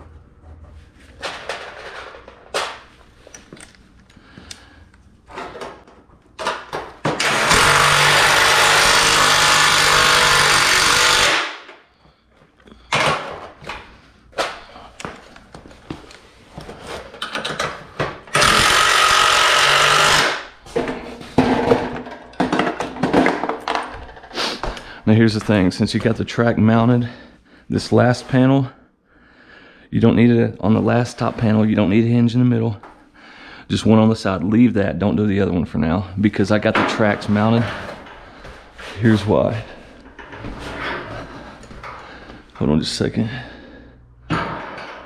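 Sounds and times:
impact driver driving screws: 7.1 - 11.8, 18.3 - 20.5.

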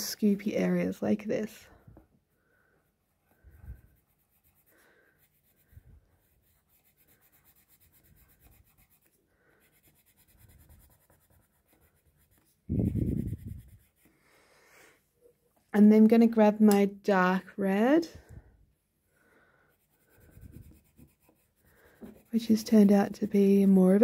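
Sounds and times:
pencil scratching on paper: 2.8 - 14.3, 19.7 - 24.0.

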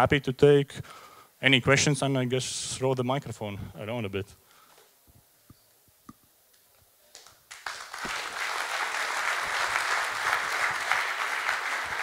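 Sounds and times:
audience applauding: 7.5 - 12.0.

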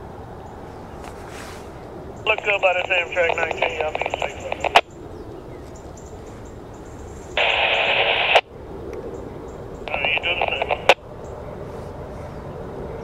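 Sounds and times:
low radio hiss: 0.6 - 12.3
radio static: 2.2 - 4.9, 7.4 - 8.5, 9.8 - 11.0
radio squelch click: 2.3 - 4.9, 7.4 - 8.5, 9.8 - 11.0.

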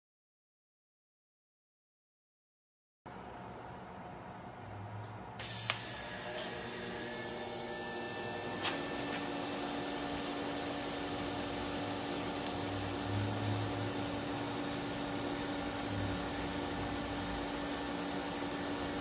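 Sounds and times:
click: 5.0 - 5.8
torch cooler running: 5.0 - 19.0
welding arc hissing: 5.4 - 19.0.

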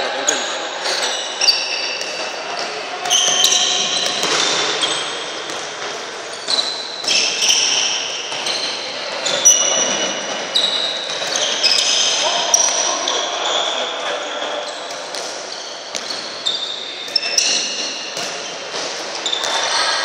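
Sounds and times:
shoes squeaking on wooden floor: 0.8 - 20.0
ball thuds: 2.0 - 8.7, 14.9 - 16.5.

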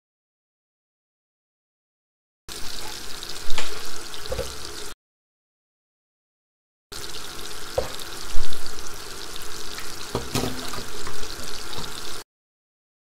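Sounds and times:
frying sizzle with crackles: 2.5 - 5.0, 6.9 - 12.2.

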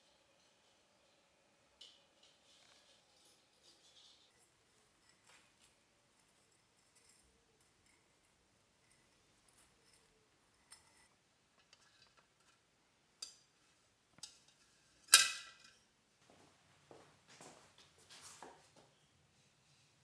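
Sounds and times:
wire rubbing and scuffing: 17.4 - 18.9.

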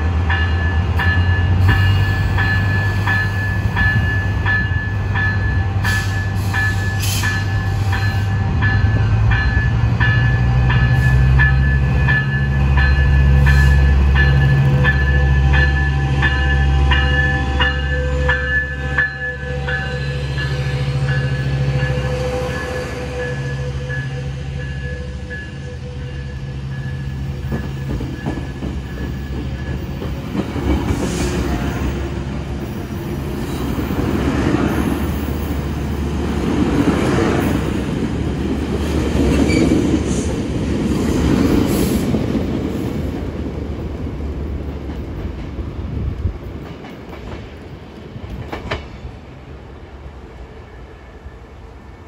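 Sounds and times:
locomotive bell ringing: 0.0 - 30.2
train wheels rumbling on rails: 0.0 - 52.0.

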